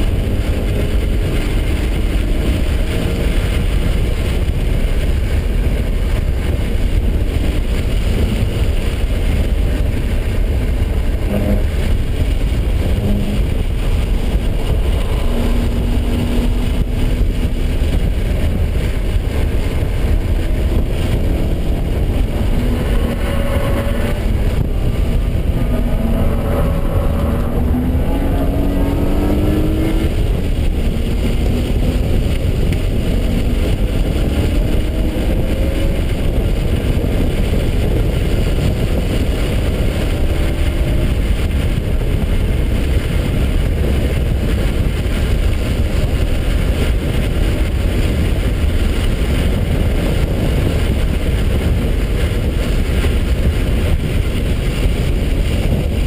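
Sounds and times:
car engine running hard: 0.0 - 56.0
road and wind noise: 0.0 - 56.0.

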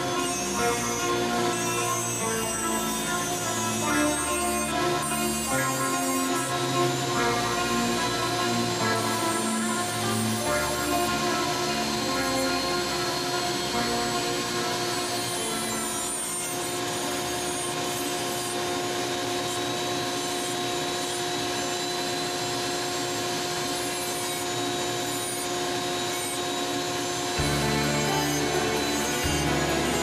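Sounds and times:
music: 0.0 - 21.0, 27.2 - 30.0
bit grinding wood: 0.0 - 30.0
rotary carver whining: 0.0 - 30.0.

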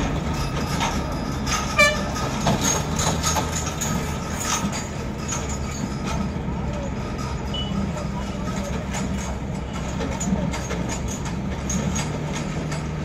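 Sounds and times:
truck diesel engines rumbling: 0.0 - 13.0
truck horn toot: 1.8 - 2.2.

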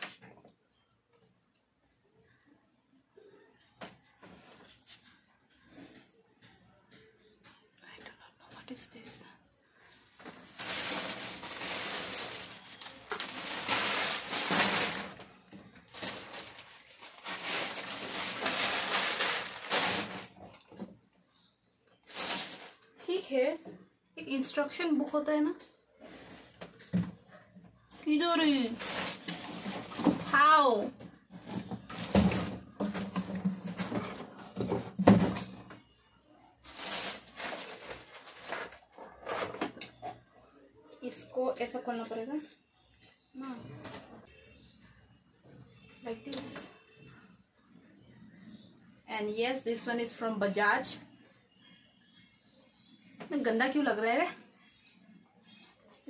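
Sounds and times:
plastic packaging rustling: 10.1 - 20.6, 22.0 - 23.0, 28.4 - 30.3, 36.6 - 39.5
plastic bags crinkling: 10.2 - 20.5, 22.0 - 22.9, 28.5 - 30.2, 36.6 - 38.9.

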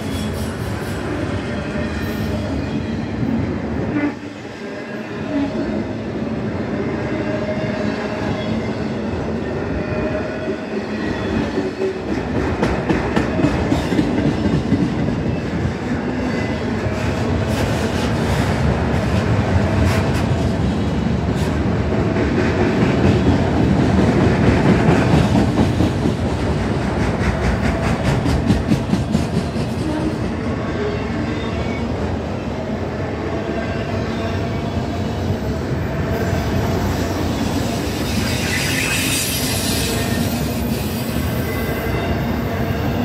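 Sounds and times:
train wheels clicking over rail joints: 21.3 - 30.1.

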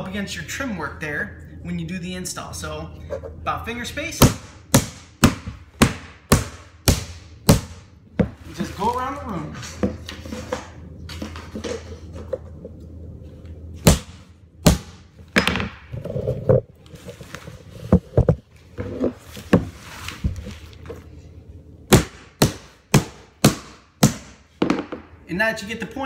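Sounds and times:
hammer striking nails into wood: 4.2 - 7.8, 21.9 - 24.9.

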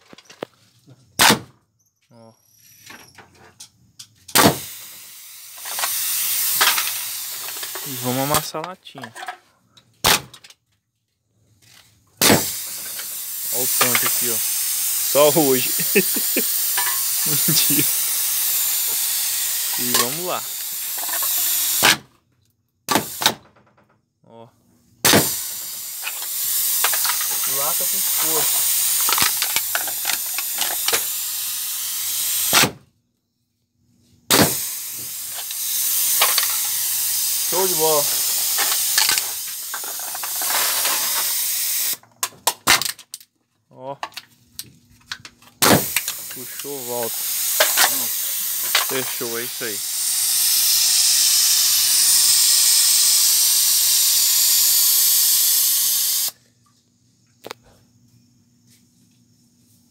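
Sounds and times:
compressed air hissing: 4.3 - 8.6, 12.2 - 22.0, 22.9 - 23.5, 25.0 - 32.8, 34.3 - 42.0, 45.6 - 56.4
loud air burst: 4.3 - 8.6, 12.2 - 22.1, 22.9 - 23.5, 25.0 - 32.8, 34.3 - 42.0, 45.6 - 56.4
sharp valve clicks: 5.6 - 8.4, 12.4 - 22.0, 45.6 - 56.4.

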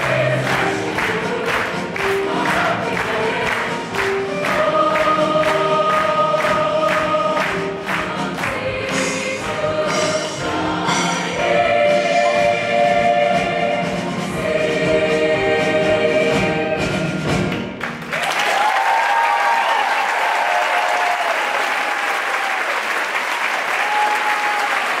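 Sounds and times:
choir singing a chord: 0.0 - 17.0
audience applause: 17.8 - 25.0
people cheering: 18.1 - 25.0.

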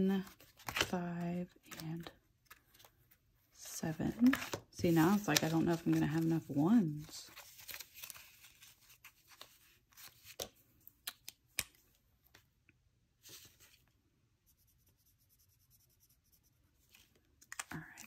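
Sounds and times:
paper bills rustling: 4.1 - 10.5
felt-tip marker scratching paper: 14.5 - 16.6.

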